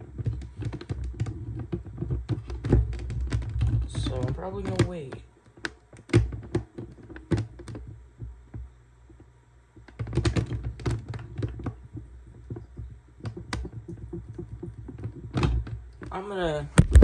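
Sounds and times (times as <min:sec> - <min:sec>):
handling clicks and taps: 0:00.2 - 0:16.1.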